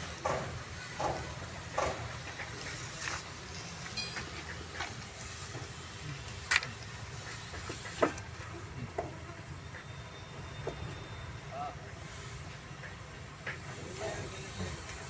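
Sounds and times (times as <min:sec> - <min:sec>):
sharp clicks and knocks: 0:00.2 - 0:03.2.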